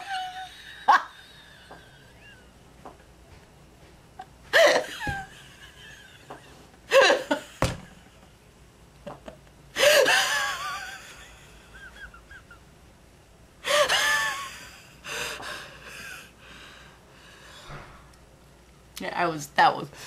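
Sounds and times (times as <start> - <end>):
person laughing hard: 0.0 - 2.5, 4.5 - 7.7, 9.8 - 12.6, 13.7 - 16.3.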